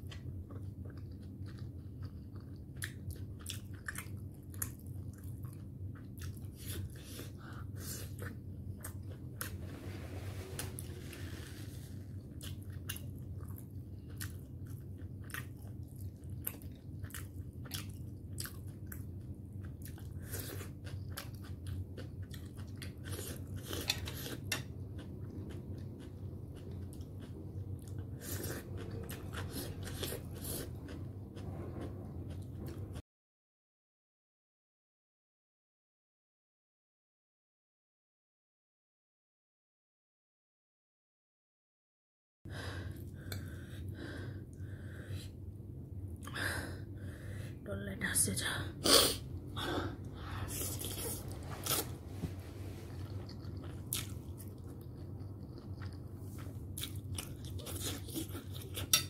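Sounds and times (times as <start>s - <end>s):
close-up chewing dumplings: 0.0s - 9.6s, 12.1s - 33.0s, 49.3s - 59.0s
steady low hum: 0.0s - 33.0s, 42.5s - 59.0s.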